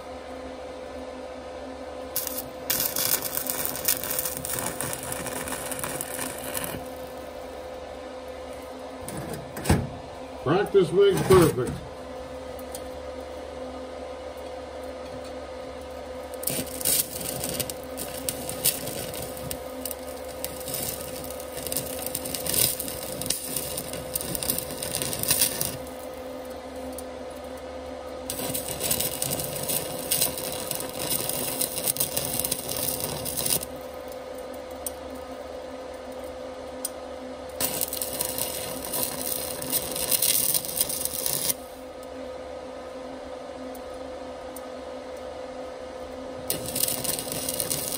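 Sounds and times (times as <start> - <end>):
welder humming with whine: 0.0 - 47.9
welding arc crackling and sizzling: 2.0 - 9.5, 15.8 - 27.6, 28.2 - 41.9, 46.4 - 47.9.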